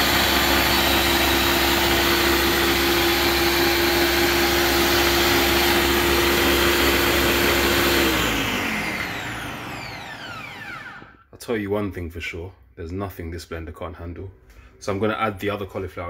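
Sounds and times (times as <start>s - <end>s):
blender motor running: 0.0s - 11.2s.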